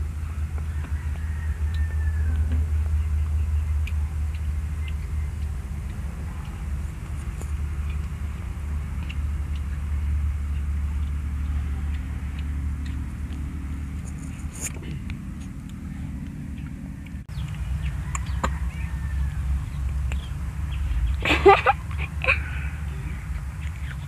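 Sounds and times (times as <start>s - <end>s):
low rumble: 0.0s - 24.0s
faint scattered clicks: 0.5s - 18.6s.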